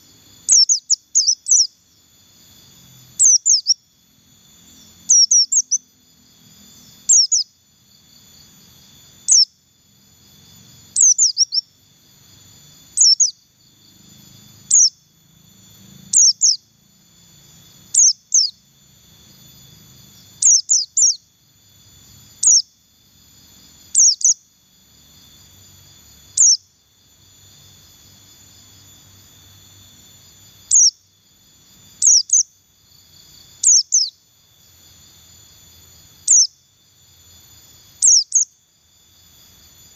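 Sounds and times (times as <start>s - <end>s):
bird high whistled calls: 0.0s - 1.8s, 3.2s - 3.8s, 5.1s - 5.9s, 7.0s - 7.6s, 9.2s - 9.6s, 11.0s - 11.7s, 12.9s - 13.4s, 14.7s - 15.0s, 16.1s - 16.7s, 17.9s - 18.6s, 20.4s - 21.2s, 22.4s - 22.7s, 23.9s - 24.4s, 26.4s - 26.7s, 30.7s - 31.0s, 32.0s - 32.5s, 33.6s - 34.2s, 36.3s - 36.6s, 38.0s - 38.5s
high insect buzz: 0.0s - 39.9s.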